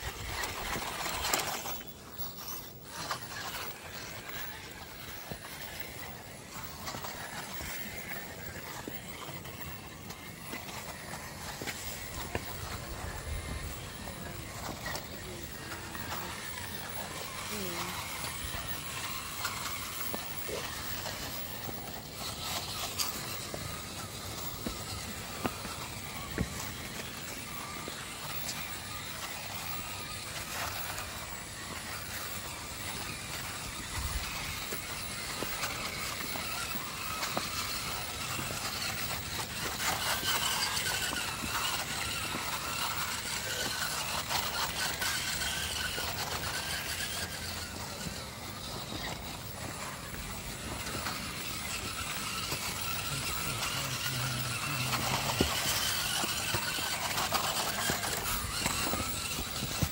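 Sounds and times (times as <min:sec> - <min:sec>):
electric motors whining: 0:00.0 - 0:59.9.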